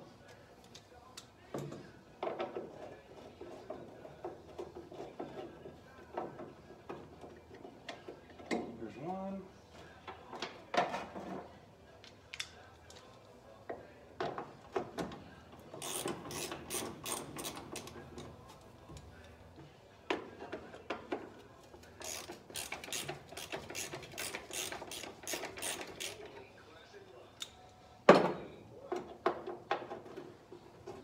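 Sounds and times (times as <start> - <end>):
ratchet wrench clicking: 15.8 - 17.9, 22.0 - 26.2.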